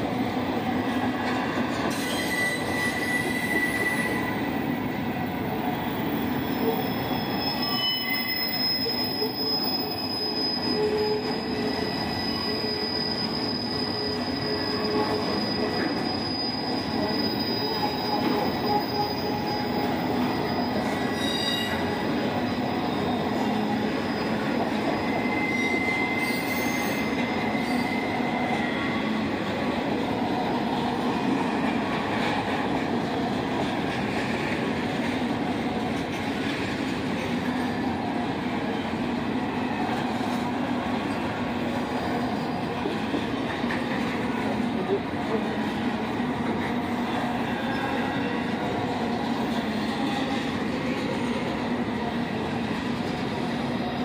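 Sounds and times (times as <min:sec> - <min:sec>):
freight train wheels rumbling: 0:00.0 - 0:54.0
steel wheels squealing: 0:01.7 - 0:04.8, 0:05.8 - 0:29.7.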